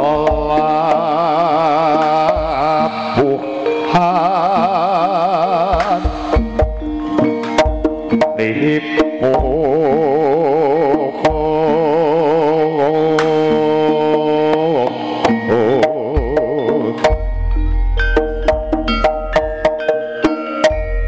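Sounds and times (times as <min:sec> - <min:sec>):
sharp drum strokes: 0:00.0 - 0:09.9
wavering melody line: 0:00.0 - 0:21.0.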